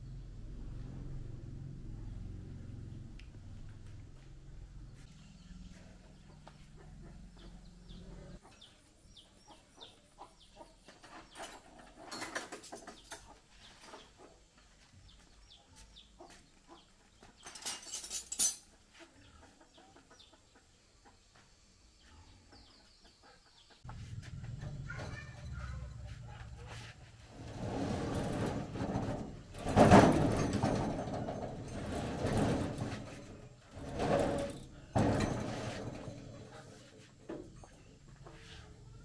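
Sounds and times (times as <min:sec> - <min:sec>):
birds chirping: 0:04.8 - 0:11.6
rustling clatter: 0:23.9 - 0:38.4.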